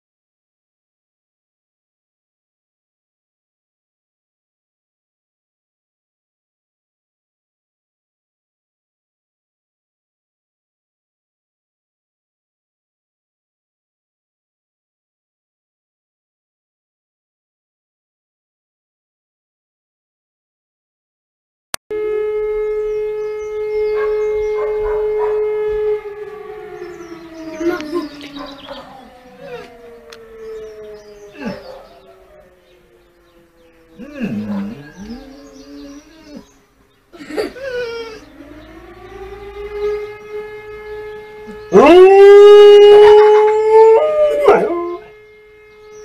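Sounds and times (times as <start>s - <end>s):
warning siren steady tone: 21.9s - 46.0s
dog howling: 23.5s - 36.6s, 37.4s - 40.2s, 41.5s - 45.2s
dog whining: 27.5s - 29.8s, 31.3s - 32.2s, 34.0s - 36.6s, 37.3s - 38.3s.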